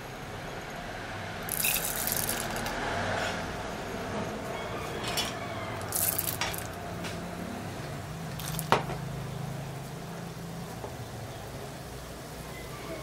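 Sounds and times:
oil crackling and spitting: 0:01.4 - 0:02.9, 0:05.8 - 0:07.3, 0:08.2 - 0:09.1
seeds sizzling in hot oil: 0:01.4 - 0:02.9, 0:05.8 - 0:06.8, 0:07.4 - 0:13.0.

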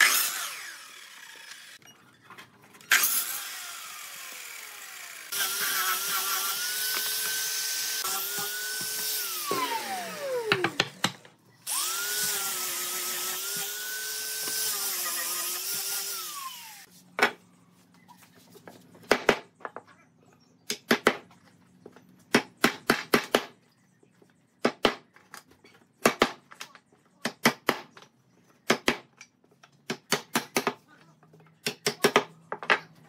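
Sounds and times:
electric drill running: 0:00.0 - 0:01.8, 0:02.9 - 0:10.7, 0:11.6 - 0:16.9.

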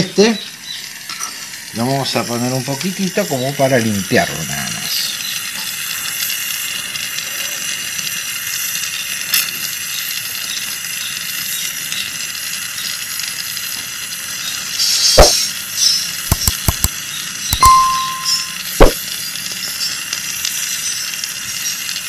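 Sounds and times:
sharp clicks: 0:16.3 - 0:16.9.

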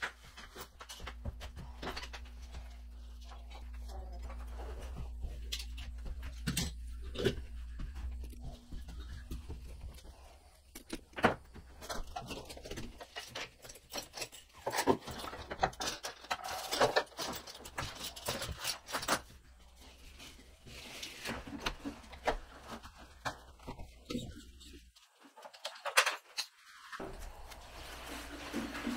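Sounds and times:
fabric rustling: 0:27.0 - 0:28.9.

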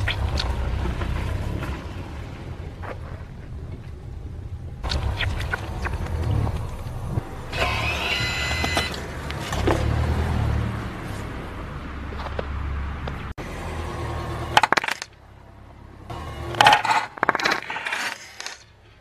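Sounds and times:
car tyres rolling on snow: 0:00.0 - 0:07.6
car low rumble: 0:00.0 - 0:17.3
plastic squeaking: 0:04.8 - 0:09.8.

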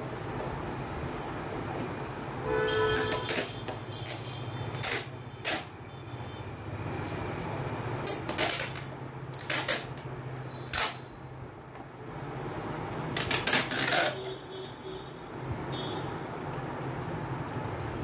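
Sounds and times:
sticky tape pulled off roll: 0:02.9 - 0:05.8, 0:07.9 - 0:11.1, 0:12.9 - 0:14.3.

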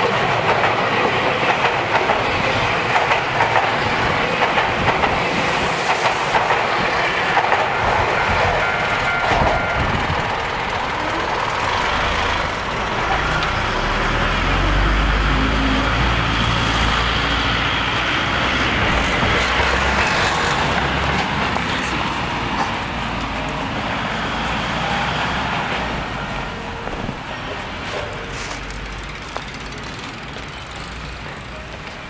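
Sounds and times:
passing vehicle rumble: 0:09.5 - 0:32.0.

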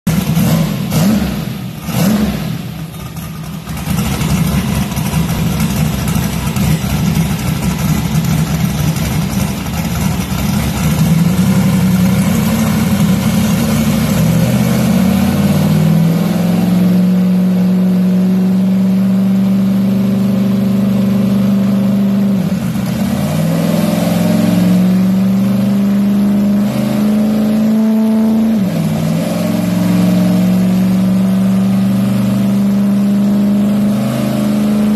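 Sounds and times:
car engine revving on dyno: 0:00.1 - 0:34.9.

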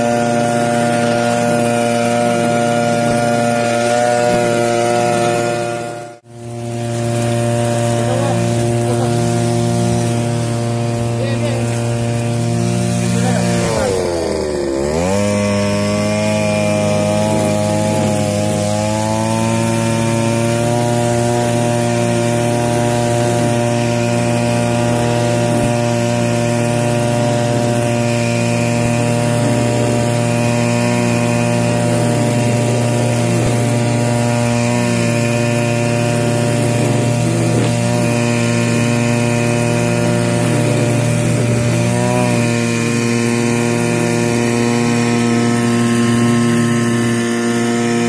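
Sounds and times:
brush cutter engine running: 0:00.0 - 0:48.0
trimmer line cutting grass: 0:00.0 - 0:48.0.

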